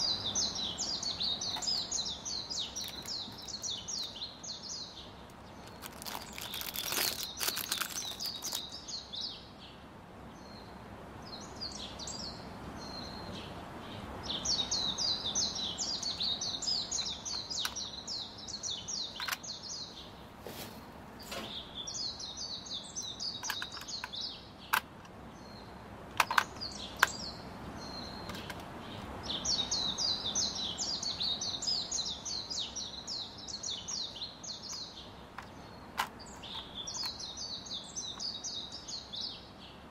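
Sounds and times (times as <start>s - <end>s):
birds chirping: 0.0s - 39.9s
hard plastic clicks: 23.4s - 25.2s, 26.1s - 27.2s.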